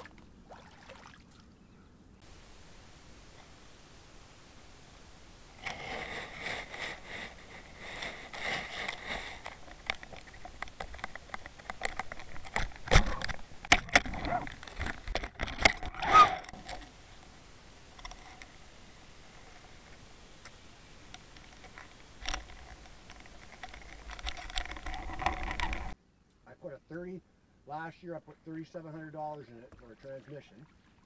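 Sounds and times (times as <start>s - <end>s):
scratchy rasping: 5.5s - 13.0s
underwater camera knocks and scrapes: 8.1s - 16.8s, 21.4s - 26.0s.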